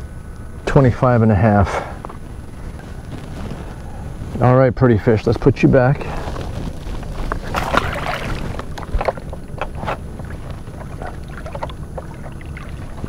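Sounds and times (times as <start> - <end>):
wind rumble on microphone: 0.0 - 13.0
water splashing and sloshing: 6.1 - 13.0.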